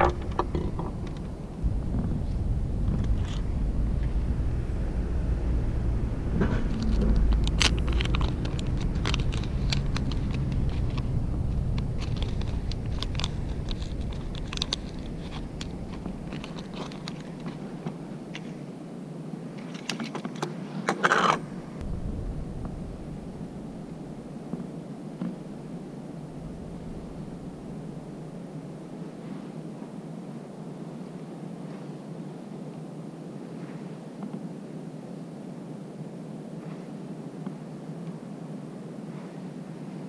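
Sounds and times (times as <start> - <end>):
low rumble: 0.0 - 18.4, 21.4 - 29.1
hands handling fishing tackle: 6.7 - 11.0, 11.7 - 18.6.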